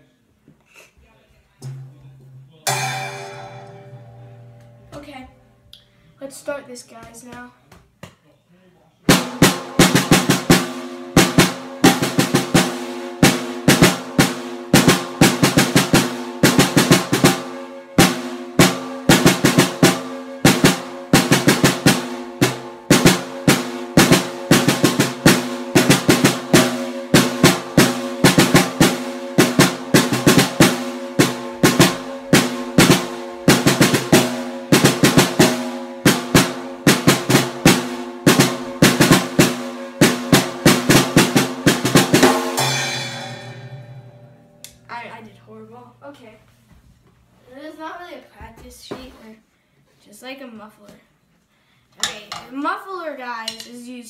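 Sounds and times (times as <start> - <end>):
snare drum strokes and rolls: 9.1 - 43.8.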